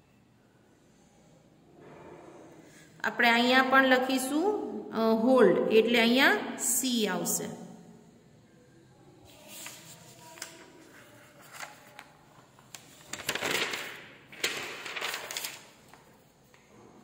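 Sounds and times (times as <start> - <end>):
page turning swishes: 9.3 - 16.2
paper pages rustling: 9.3 - 16.7.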